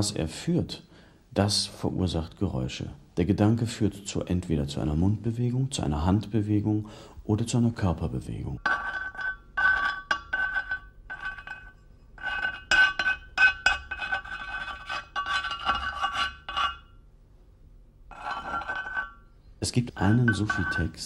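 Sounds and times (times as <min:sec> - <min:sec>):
hard object scraping rough surface: 0:08.7 - 0:16.9, 0:18.1 - 0:19.2
thin ringing tone: 0:18.1 - 0:21.0.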